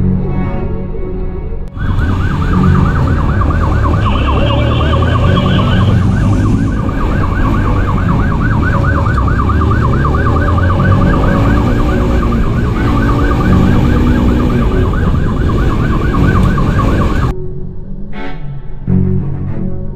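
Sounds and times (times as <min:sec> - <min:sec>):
police siren yelping: 0:01.7 - 0:17.3.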